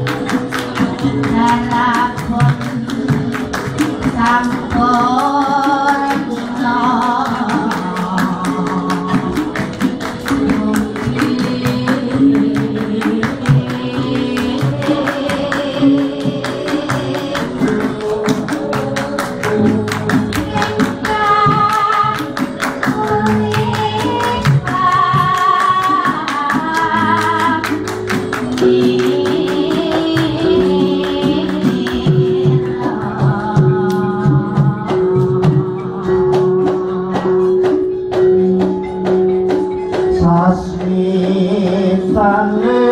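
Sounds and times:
gamelan playing: 0:00.0 - 0:42.9
person singing: 0:00.0 - 0:42.9.

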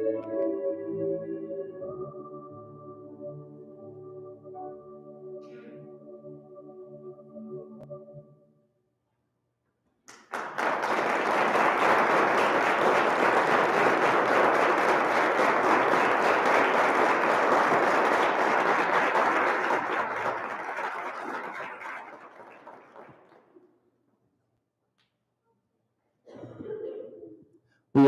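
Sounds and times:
audience applause: 0:10.1 - 0:23.4.

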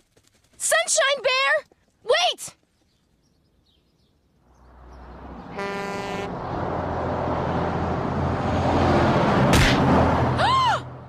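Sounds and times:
truck engine rumble: 0:04.5 - 0:11.0
truck horn blast: 0:05.4 - 0:06.5.

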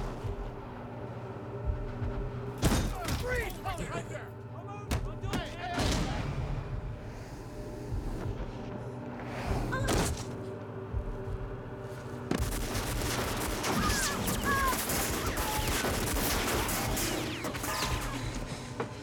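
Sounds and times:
low droning film score: 0:00.0 - 0:19.0
rapid gunfire: 0:12.3 - 0:18.7.

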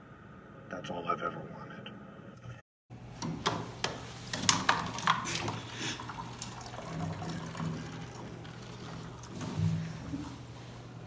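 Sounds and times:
water pouring into cups: 0:04.4 - 0:10.6.

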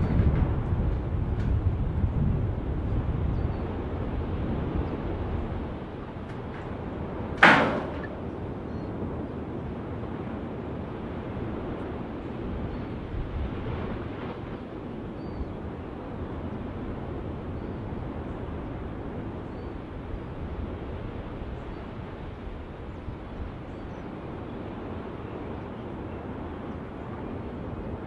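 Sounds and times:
deep roar of lava vent: 0:00.0 - 0:28.0.

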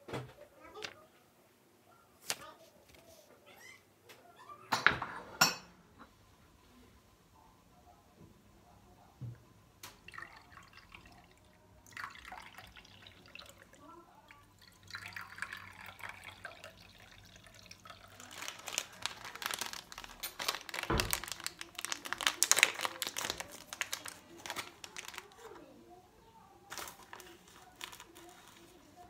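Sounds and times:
water pouring into cups: 0:09.9 - 0:25.0
plastic packet crinkling and tearing: 0:17.6 - 0:25.7, 0:26.7 - 0:29.0.

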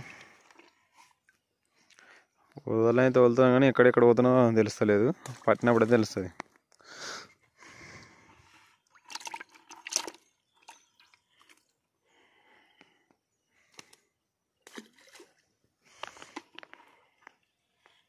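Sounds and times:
water sloshing in a bucket: 0:00.0 - 0:01.5, 0:04.6 - 0:06.3, 0:08.7 - 0:11.8, 0:14.6 - 0:17.3
fish splashing into a pond: 0:08.9 - 0:11.6, 0:14.6 - 0:15.5.

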